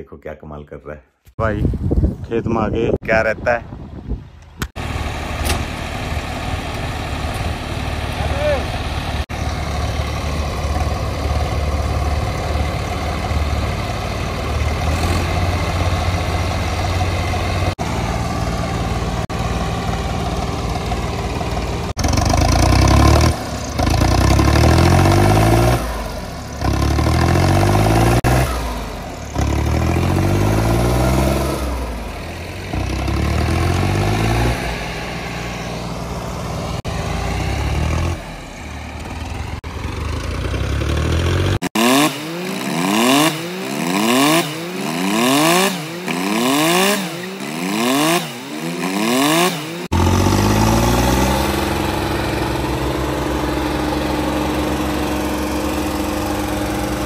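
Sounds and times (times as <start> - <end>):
tractor diesel engine revving: 4.6 - 57.0.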